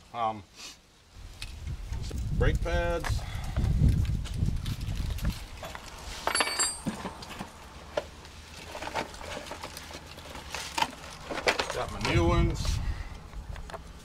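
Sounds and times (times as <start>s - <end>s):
metallic clinks of brake pads: 5.6s - 7.4s.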